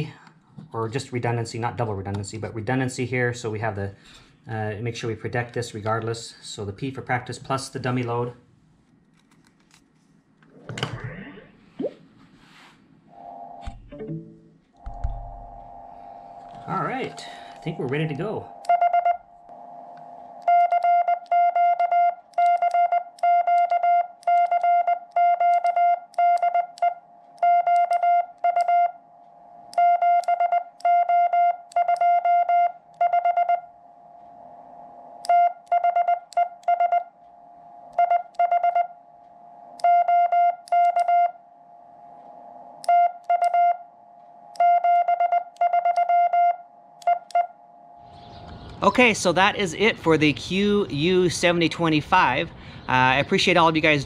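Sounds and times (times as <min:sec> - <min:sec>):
morse code beeps: 0:14.8 - 0:34.4, 0:35.1 - 0:48.2.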